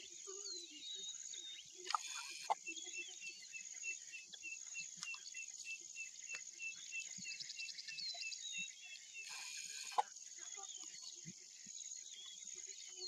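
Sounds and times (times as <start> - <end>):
bird trilling: 1.7 - 3.1.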